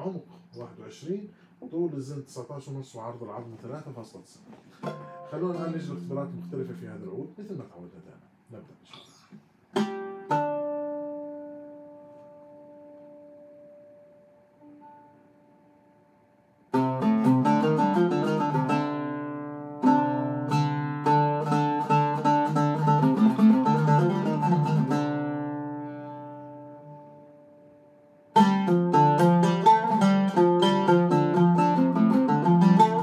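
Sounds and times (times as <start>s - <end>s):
oud plucked notes: 4.8s - 7.3s, 9.7s - 15.8s, 16.7s - 33.0s.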